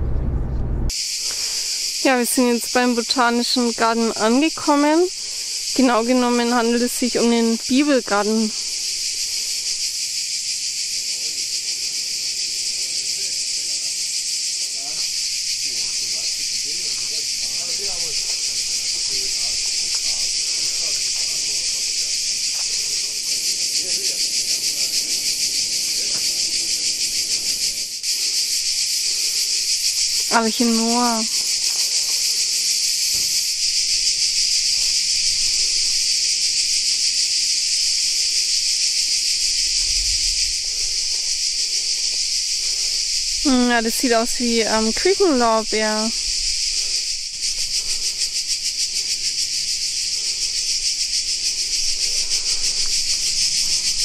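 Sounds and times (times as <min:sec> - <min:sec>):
cicadas buzzing: 0:00.8 - 0:54.0.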